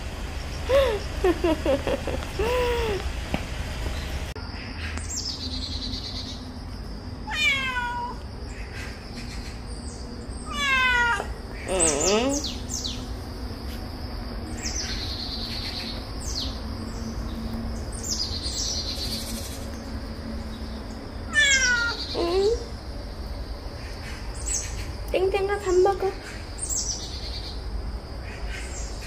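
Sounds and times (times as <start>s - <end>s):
birds chirping faintly: 0.0s - 7.2s, 8.0s - 29.0s
cat meowing: 7.3s - 8.2s, 10.5s - 11.4s, 21.3s - 22.2s.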